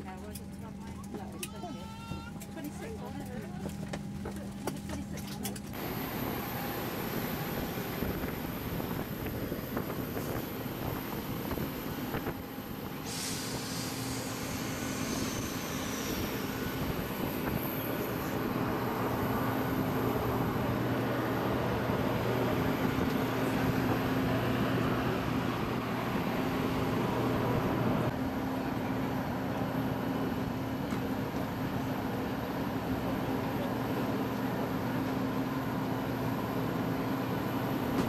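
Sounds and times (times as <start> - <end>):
airport machinery drone: 5.4 - 38.0.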